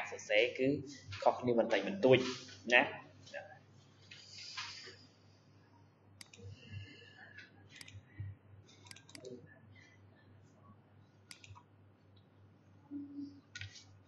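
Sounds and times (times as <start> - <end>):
faint steady hum: 0.0 - 14.0
computer mouse clicking: 6.2 - 6.5, 7.4 - 8.0, 8.8 - 9.3, 11.2 - 12.3.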